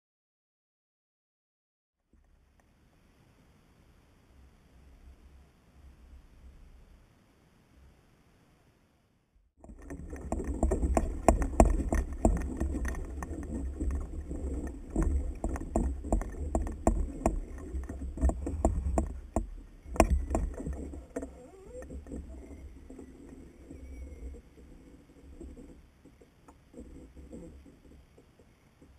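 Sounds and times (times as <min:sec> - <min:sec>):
kayak hull and gear knocking: 0:09.6 - 0:24.5.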